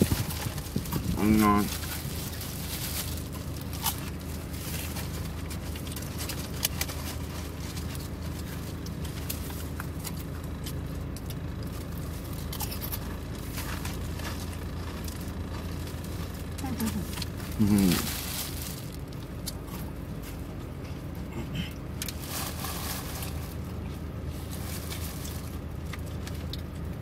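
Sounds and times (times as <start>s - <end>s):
paper wrapper crinkling: 0.0s - 19.9s, 22.0s - 26.6s
car cabin hum: 0.0s - 27.0s
chewing: 0.1s - 18.2s.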